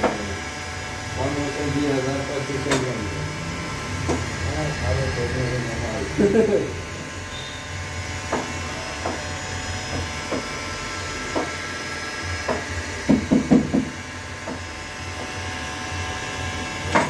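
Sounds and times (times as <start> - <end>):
louder knocks: 12.5 - 14.0.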